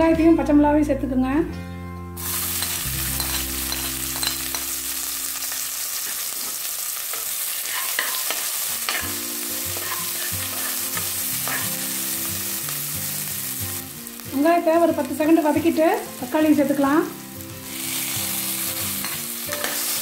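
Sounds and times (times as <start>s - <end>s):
onion sizzling in hot oil: 2.2s - 20.0s
spoon scraping and clicking on pan: 2.6s - 4.7s, 6.0s - 11.8s, 19.0s - 20.0s.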